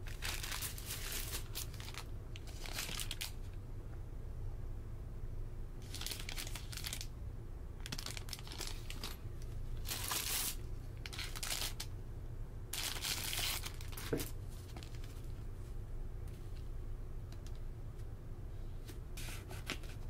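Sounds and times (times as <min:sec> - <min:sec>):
plastic packaging crinkling: 0:00.0 - 0:03.4, 0:05.8 - 0:07.1, 0:07.8 - 0:09.2, 0:09.8 - 0:11.9, 0:12.7 - 0:15.3
steady low hum: 0:00.0 - 0:20.0.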